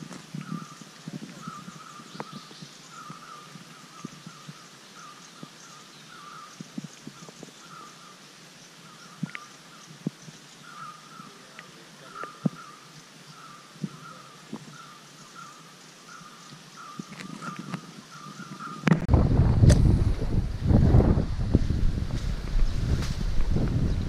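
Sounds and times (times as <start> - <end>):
animals chirping: 8.8 - 18.9.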